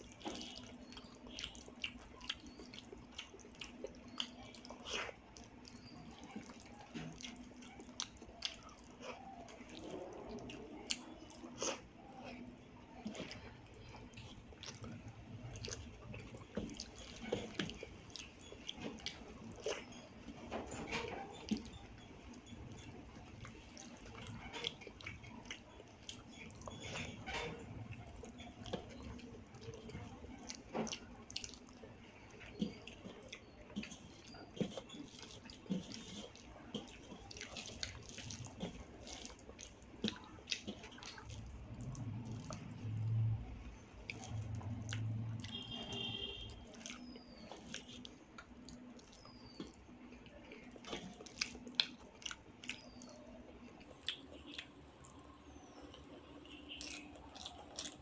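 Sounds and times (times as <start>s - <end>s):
rice squishing mixed by hand: 0.0s - 54.8s
chewing with wet mouth smacks: 0.0s - 58.0s
eating mouth sounds: 55.8s - 58.0s.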